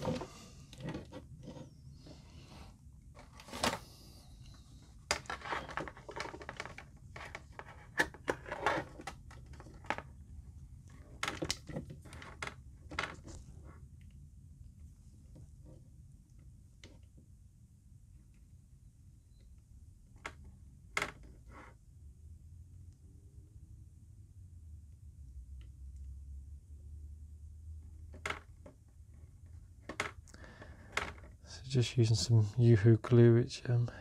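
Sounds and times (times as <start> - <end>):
plastic tray clicks and crinkles: 5.1 - 10.1, 11.1 - 13.4.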